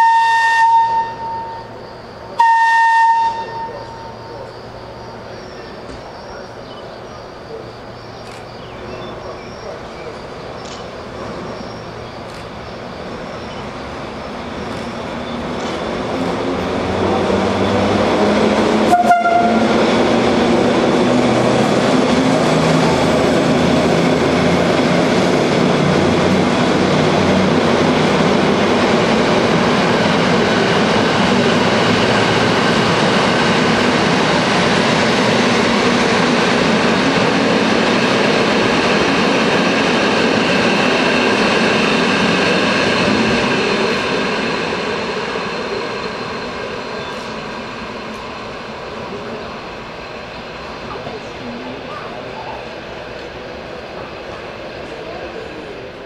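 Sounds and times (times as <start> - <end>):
short train horn toot: 0.0 - 1.8, 2.4 - 4.3, 18.9 - 19.8
faint high whine: 0.0 - 15.8
train rolling past: 0.0 - 56.0
sharp click: 10.6 - 10.9.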